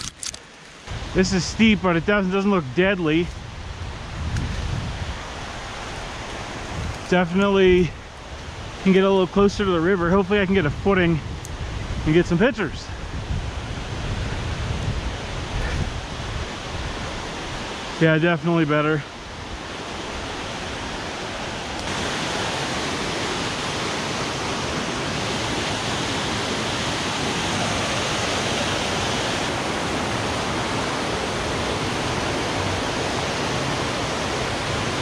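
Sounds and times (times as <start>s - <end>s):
fast-flowing river rushing: 13.0s - 35.0s.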